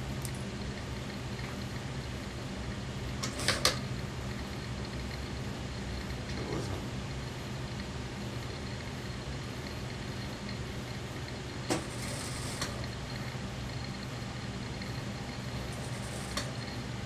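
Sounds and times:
sewing machine stitching: 0:11.7 - 0:12.8
sewing machine motor humming: 0:11.7 - 0:14.1, 0:14.7 - 0:16.8.

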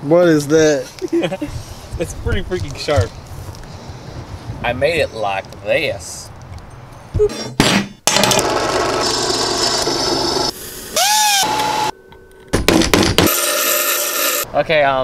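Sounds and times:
short rising and falling squeal: 0:09.0 - 0:12.1
sharp knocks: 0:12.5 - 0:13.4.

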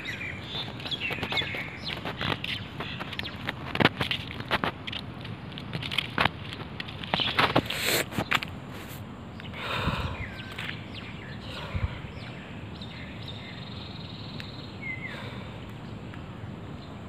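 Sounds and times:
birds chirping and whistling: 0:00.0 - 0:03.5, 0:09.4 - 0:16.0
background noise: 0:00.0 - 0:17.0.

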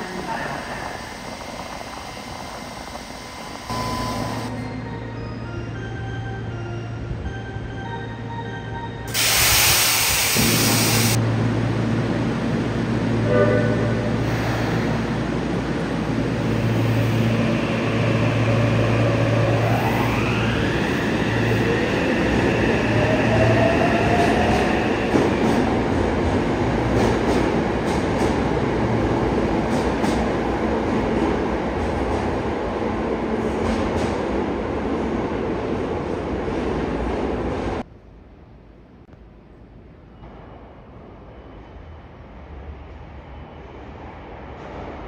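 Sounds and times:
traction motors whining: 0:00.0 - 0:04.7
train rolling rumble: 0:10.3 - 0:45.0.

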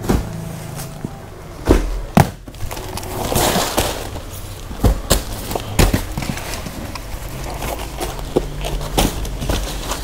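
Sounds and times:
packs knocking and thudding: 0:00.0 - 0:00.9, 0:01.6 - 0:10.0
plastic packaging crinkling: 0:02.5 - 0:10.0.

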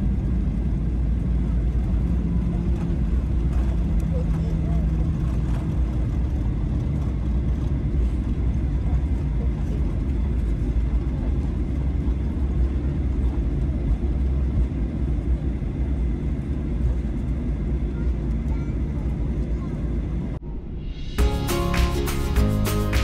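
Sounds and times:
car engine rumble: 0:00.0 - 0:23.0.

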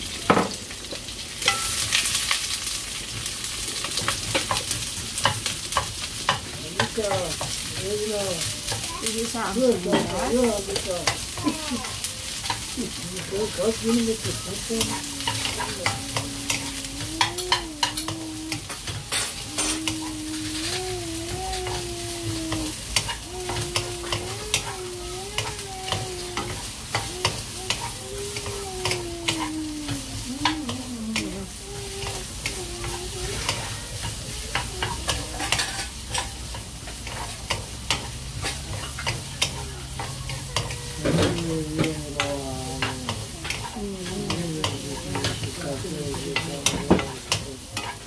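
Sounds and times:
onions sizzling in frying pan: 0:00.0 - 0:48.0
wooden utensils scraping a pan: 0:04.0 - 0:48.0.

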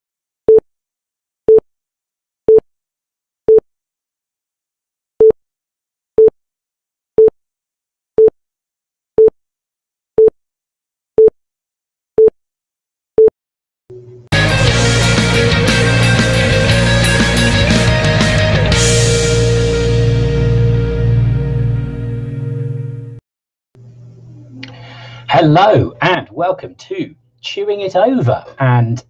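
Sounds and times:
loud music: 0:14.3 - 0:23.2.

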